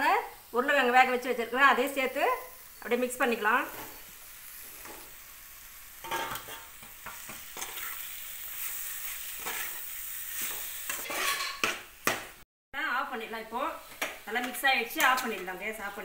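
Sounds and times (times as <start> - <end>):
food sizzling in a pan: 0.0 - 16.0
metal spatula scraping a pan: 6.0 - 11.8.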